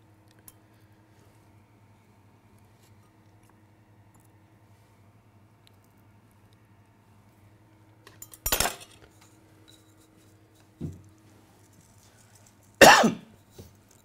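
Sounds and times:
kitchen utensils clattering: 0:08.4 - 0:09.0.

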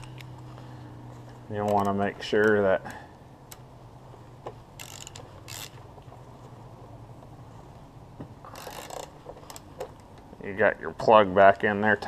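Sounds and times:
socket ratchet clicking: 0:04.7 - 0:05.8, 0:08.5 - 0:10.2.

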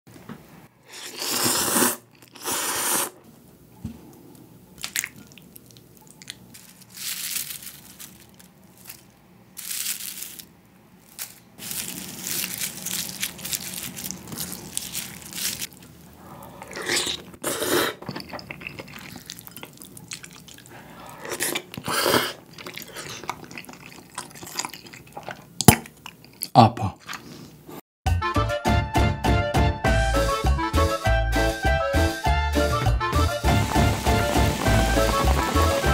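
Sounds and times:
slurping noodles and soup: 0:00.8 - 0:03.2, 0:16.2 - 0:25.5
chewing and wet mouth sounds: 0:04.3 - 0:07.3, 0:11.6 - 0:27.6.

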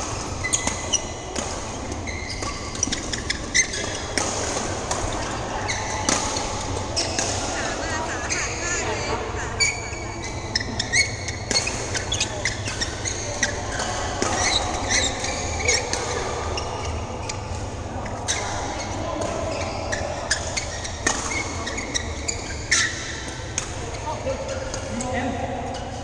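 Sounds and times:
racket hitting shuttlecock: 0:00.0 - 0:07.8, 0:10.7 - 0:17.8, 0:19.2 - 0:25.0
faint voices: 0:00.0 - 0:26.0
shoes squeaking on court floor: 0:00.0 - 0:26.0.

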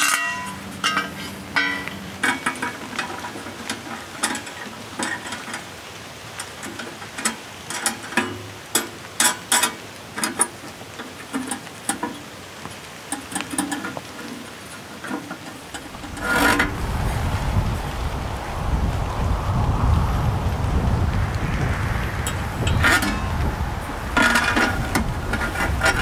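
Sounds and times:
loud rustle: 0:13.9 - 0:26.0.

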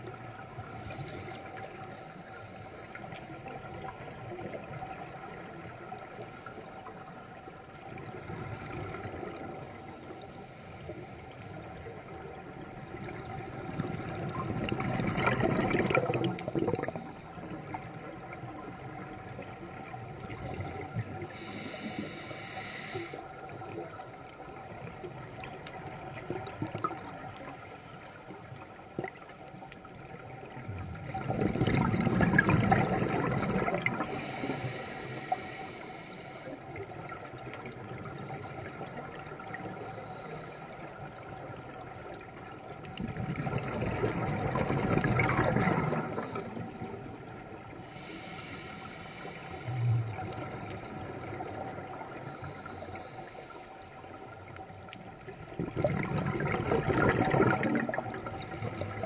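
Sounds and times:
low hiss of water: 0:00.0 - 0:59.0
diver exhaling bubbles underwater: 0:13.7 - 0:17.2, 0:31.1 - 0:34.2, 0:43.0 - 0:46.9, 0:55.5 - 0:59.0.

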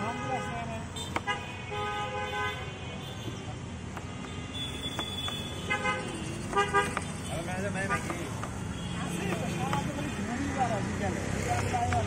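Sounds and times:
low traffic din: 0:00.0 - 0:12.0
vehicle horns honking: 0:04.1 - 0:08.1.

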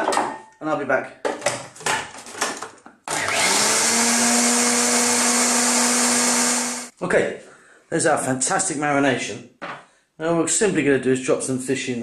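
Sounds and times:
food processor motor whining: 0:03.1 - 0:06.9.

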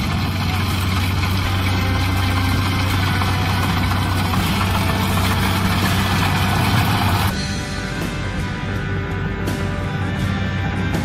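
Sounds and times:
dense mechanical noise: 0:00.0 - 0:07.4
combine harvester engine drone: 0:00.0 - 0:11.0.

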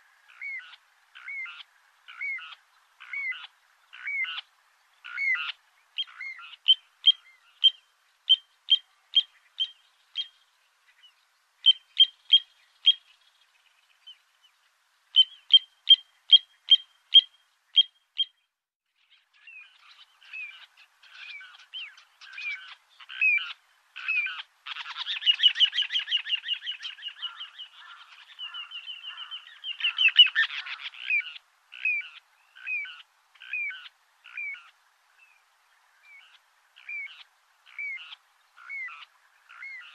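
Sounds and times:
plover piping calls: 0:00.3 - 0:10.4, 0:11.6 - 0:13.1, 0:15.1 - 0:18.3, 0:19.8 - 0:34.7
bird trill: 0:05.0 - 0:10.4, 0:11.6 - 0:13.2, 0:15.1 - 0:18.5, 0:19.1 - 0:34.7, 0:36.1 - 0:39.9.

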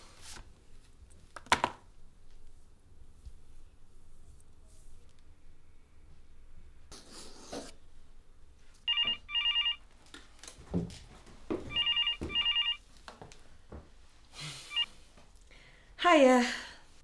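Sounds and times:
telephone ringing: 0:08.9 - 0:09.8, 0:11.7 - 0:12.8.

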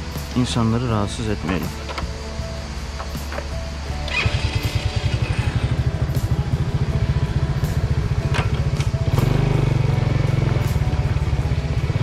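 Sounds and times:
motorcycle engine running: 0:03.9 - 0:12.0.

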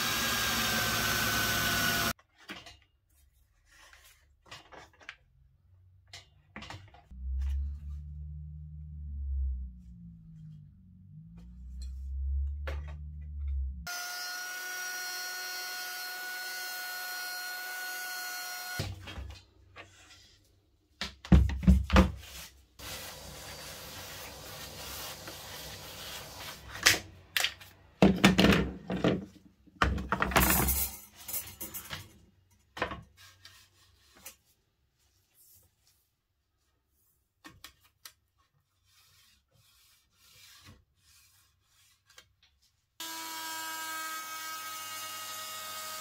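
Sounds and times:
router motor running: 0:00.0 - 0:02.1, 0:13.9 - 0:18.8
low hum: 0:07.1 - 0:13.9.

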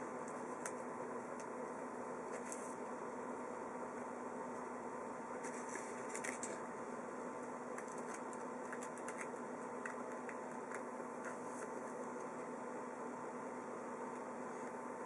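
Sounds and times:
background hum: 0:00.0 - 0:15.0
cards rustling and clicking: 0:05.4 - 0:06.6, 0:07.7 - 0:12.2.

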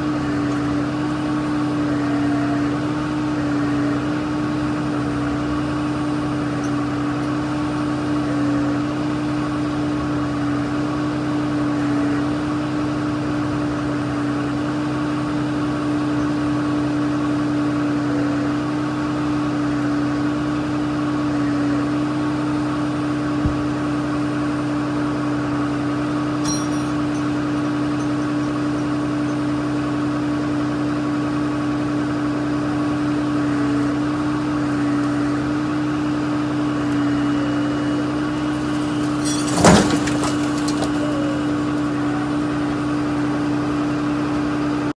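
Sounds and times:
truck engine running: 0:00.0 - 0:44.9
vehicle crashing onto wheels: 0:38.4 - 0:41.9.

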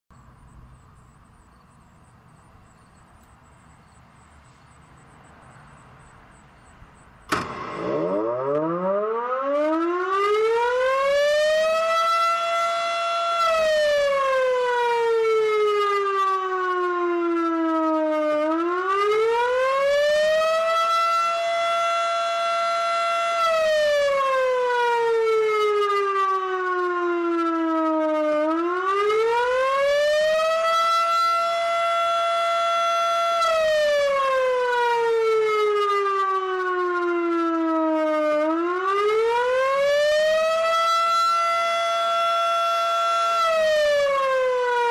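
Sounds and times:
siren switch click: 0:07.2 - 0:09.8
fire siren rising and falling: 0:07.2 - 0:44.9.

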